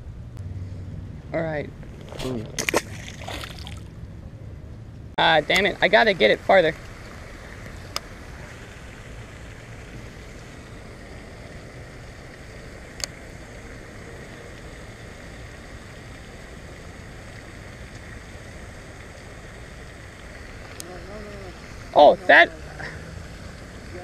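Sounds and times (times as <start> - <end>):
wind rumble on microphone: 0.0 - 5.1.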